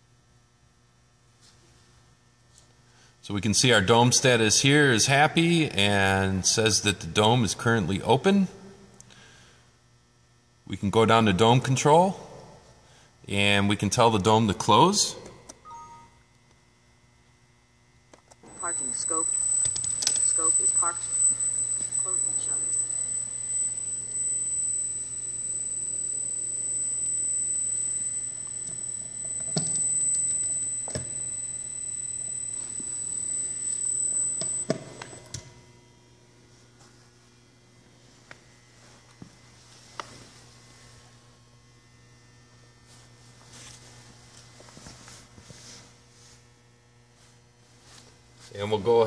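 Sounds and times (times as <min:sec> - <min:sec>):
low steady hum: 0:02.1 - 0:39.6
gearmotor whining: 0:18.4 - 0:35.4.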